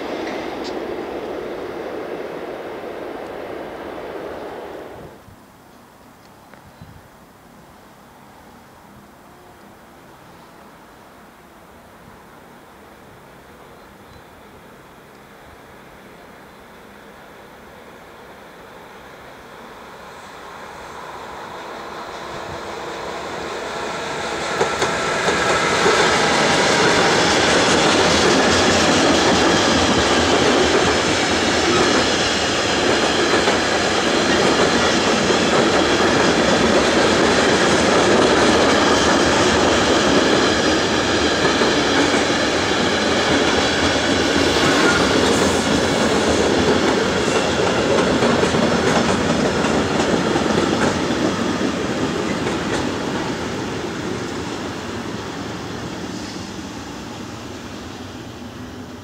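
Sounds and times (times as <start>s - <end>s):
freight train wheels rumbling on rails: 0.0s - 5.2s, 18.7s - 59.0s.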